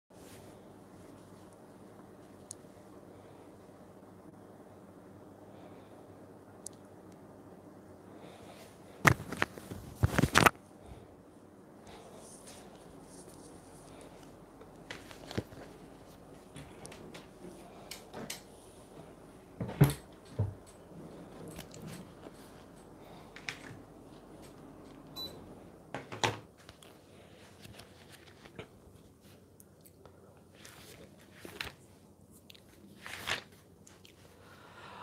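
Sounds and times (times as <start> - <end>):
knocks and rustles of handling: 9.0 - 10.6, 12.3 - 25.0.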